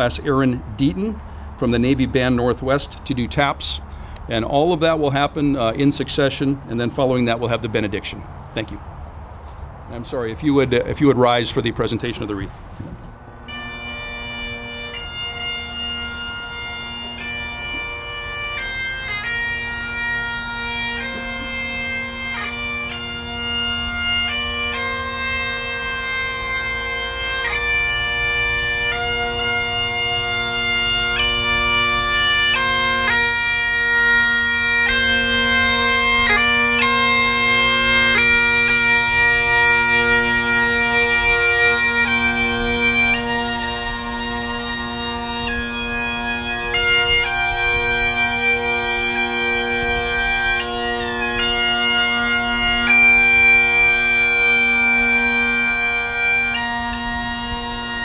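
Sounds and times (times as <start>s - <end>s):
bagpipes playing slow melody: 13.4s - 58.0s.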